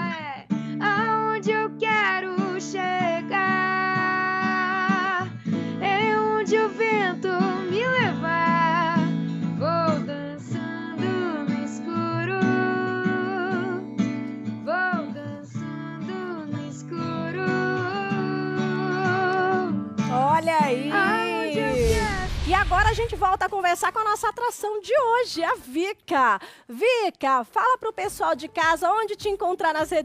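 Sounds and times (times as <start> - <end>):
strummed acoustic guitar: 0.0 - 22.2
woman singing: 0.0 - 23.7.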